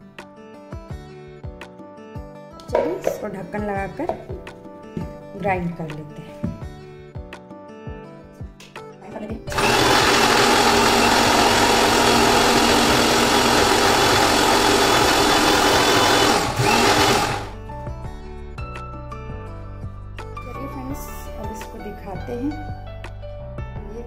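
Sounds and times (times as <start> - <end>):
electric mixer grinder running: 9.5 - 17.6.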